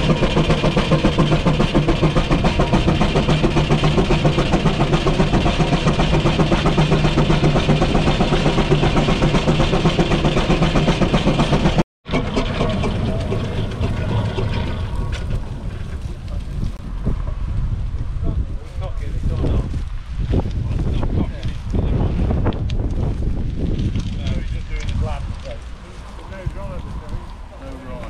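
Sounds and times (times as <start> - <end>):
steam engine exhaust beating: 0.0 - 16.8.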